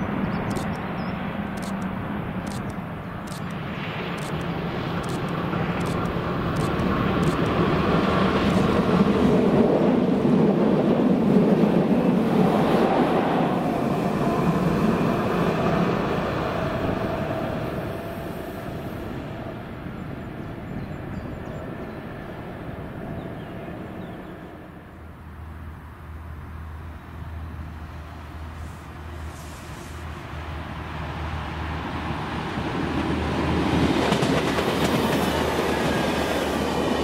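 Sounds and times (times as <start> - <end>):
diesel locomotive running: 0.0 - 37.0
distant diesel engine hum: 0.3 - 8.7.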